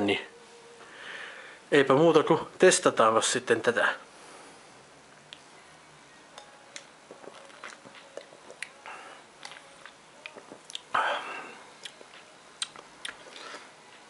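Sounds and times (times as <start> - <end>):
breathy sound: 0.8 - 1.7
lip and tongue smacks: 6.8 - 8.8, 12.6 - 13.6.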